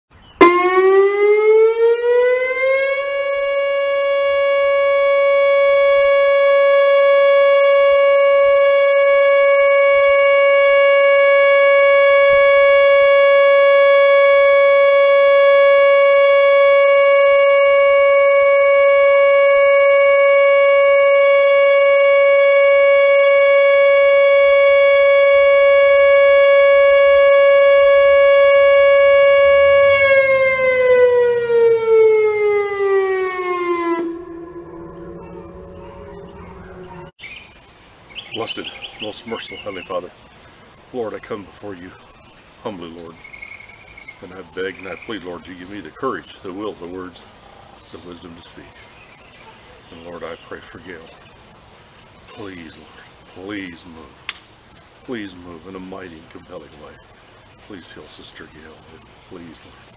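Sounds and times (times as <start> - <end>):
warning siren: 0.4 - 37.3.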